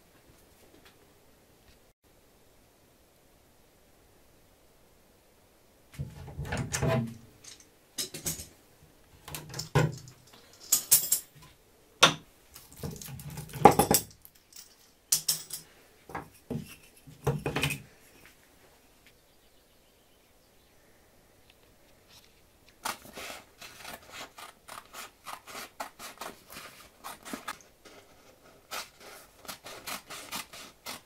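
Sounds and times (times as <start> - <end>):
metal clamps clinking and rattling: 6.4 - 8.5, 9.3 - 11.4, 12.7 - 17.9.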